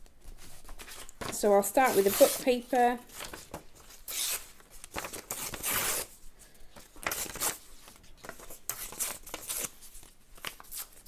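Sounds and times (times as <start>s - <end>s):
paper tearing: 1.8s - 2.5s, 3.1s - 6.1s, 7.0s - 7.6s, 8.7s - 9.8s.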